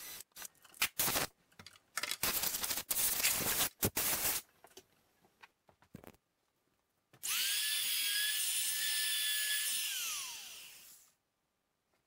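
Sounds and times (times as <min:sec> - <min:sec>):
router whining: 0:07.2 - 0:11.1.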